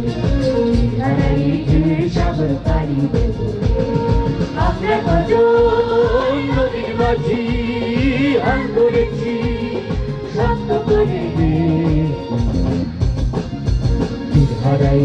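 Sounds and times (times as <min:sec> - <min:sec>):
group singing in chorus: 0:00.0 - 0:12.3
steady drum beat: 0:00.0 - 0:15.0.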